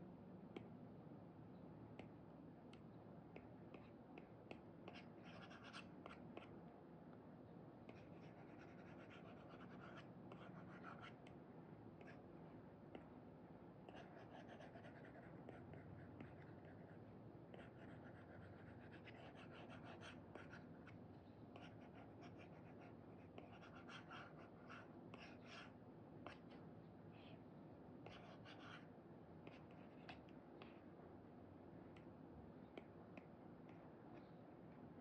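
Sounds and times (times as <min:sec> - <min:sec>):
stylus scratching and tapping on screen: 0:01.9 - 0:06.6, 0:07.9 - 0:11.4, 0:12.0 - 0:12.2, 0:12.9 - 0:13.2, 0:13.9 - 0:27.4, 0:28.0 - 0:30.9, 0:32.7 - 0:34.8.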